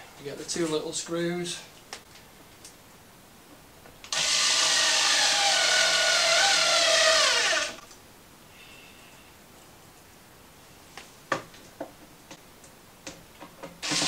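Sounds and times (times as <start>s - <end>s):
electric screwdriver motor whining: 4.1s - 7.8s.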